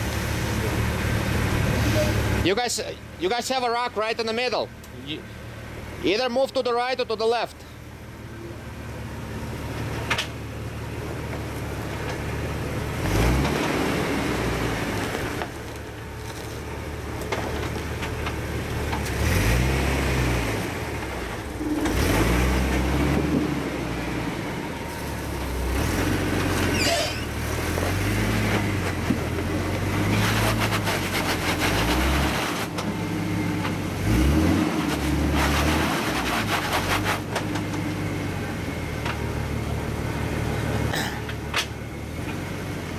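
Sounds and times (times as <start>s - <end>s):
car engine revving: 10.6s - 15.6s, 17.0s - 38.9s.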